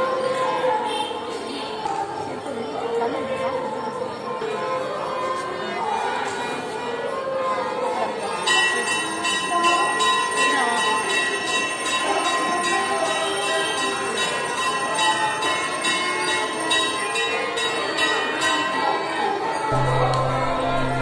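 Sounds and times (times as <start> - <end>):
temple bell ringing: 8.2 - 21.0
background voices: 19.7 - 21.0.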